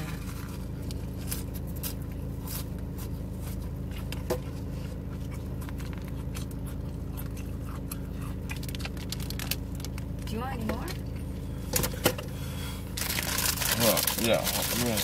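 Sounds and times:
low hum inside car: 0:00.0 - 0:15.0
person chewing a sandwich: 0:00.1 - 0:10.2.

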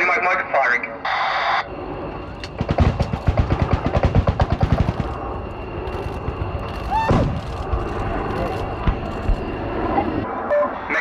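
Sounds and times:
rapid gunfire bangs: 0:02.6 - 0:05.2.

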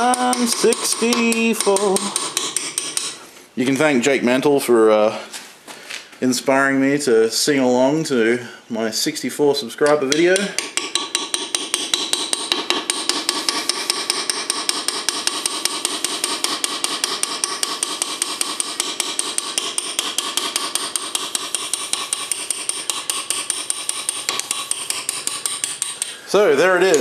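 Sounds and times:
hammer tapping metal graver: 0:00.0 - 0:03.2, 0:09.8 - 0:27.0.

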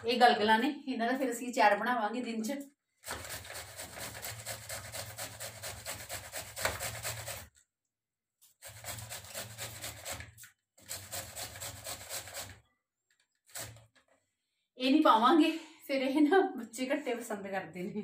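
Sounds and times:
cauliflower grated on metal grater: 0:03.0 - 0:07.6, 0:08.4 - 0:12.7, 0:13.4 - 0:14.0.

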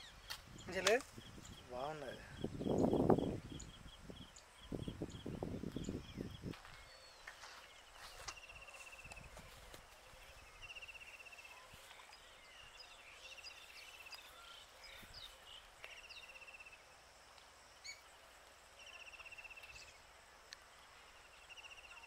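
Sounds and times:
faint bird chirps: 0:00.0 - 0:16.9, 0:17.8 - 0:18.2.

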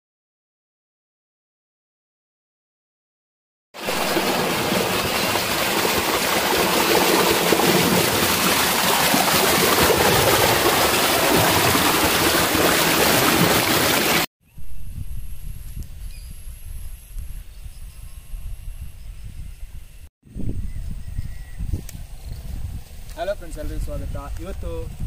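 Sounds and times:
stream rushing over rocks: 0:03.8 - 0:14.3.

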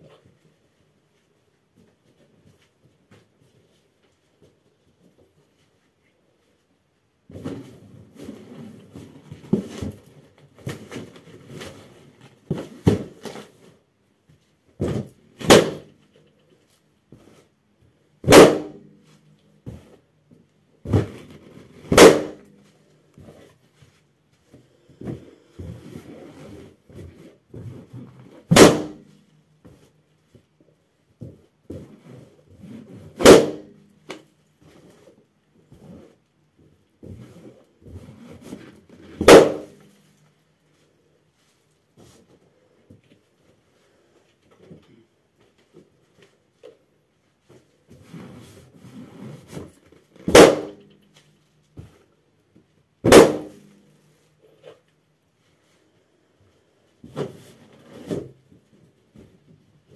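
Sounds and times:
balloons popping: 0:15.0 - 0:15.9, 0:18.2 - 0:18.8, 0:21.8 - 0:22.5, 0:28.5 - 0:29.1, 0:33.2 - 0:34.2, 0:39.2 - 0:39.8, 0:50.3 - 0:50.8, 0:53.0 - 0:53.6.

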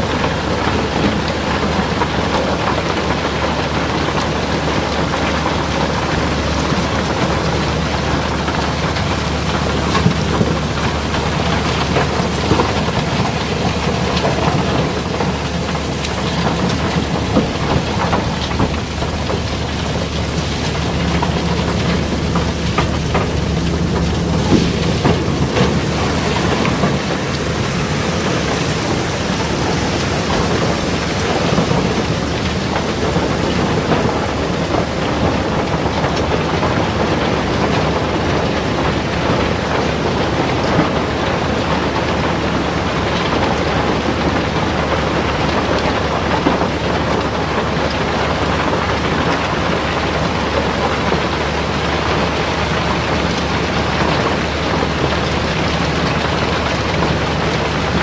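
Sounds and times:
rocks tumbling down a chute: 0:00.0 - 0:58.0
steady low hum: 0:06.0 - 0:34.0.

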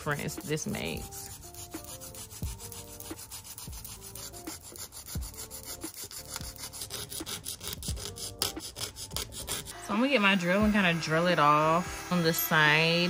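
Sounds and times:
nail file scratching plastic nail: 0:00.0 - 0:09.8.

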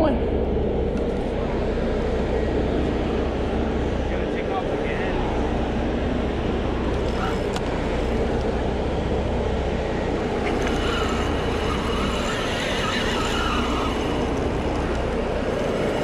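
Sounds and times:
boat engine: 0:00.0 - 0:16.0
thin steady whine: 0:00.0 - 0:16.0
water noise: 0:00.0 - 0:16.0
wavering high squeal: 0:09.7 - 0:16.0.

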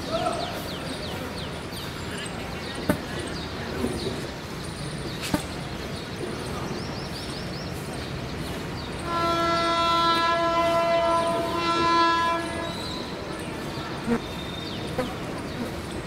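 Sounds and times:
faint train noise: 0:00.0 - 0:16.0
train horn blast: 0:09.0 - 0:13.2.

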